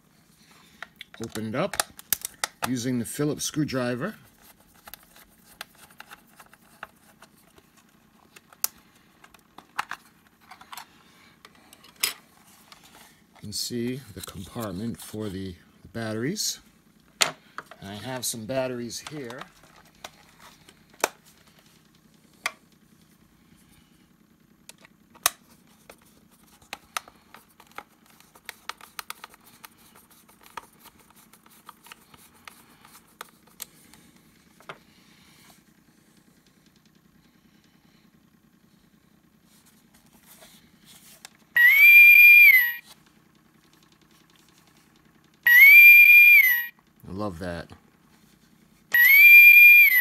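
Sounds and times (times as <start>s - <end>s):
electronic whistle from small speaker: 41.6s - 42.8s, 45.5s - 46.8s, 49.0s - 50.0s.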